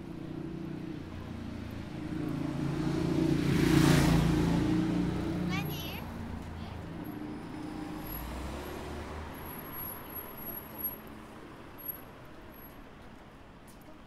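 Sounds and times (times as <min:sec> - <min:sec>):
passing vehicle rumble: 0:00.0 - 0:12.9
street noise: 0:00.0 - 0:14.0.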